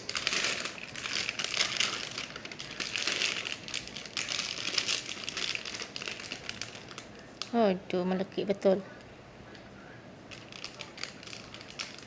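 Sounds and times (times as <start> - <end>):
plastic bag crinkling: 0.0 - 7.5, 10.3 - 12.0.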